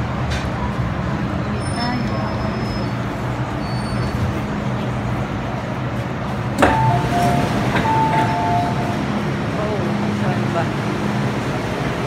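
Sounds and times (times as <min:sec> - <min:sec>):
station and train hum: 0:00.0 - 0:12.0.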